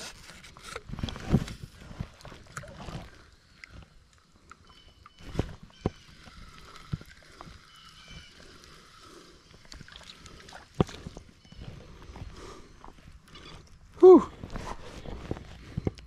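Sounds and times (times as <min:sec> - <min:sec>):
creek water sloshing around waders: 0:01.8 - 0:12.2.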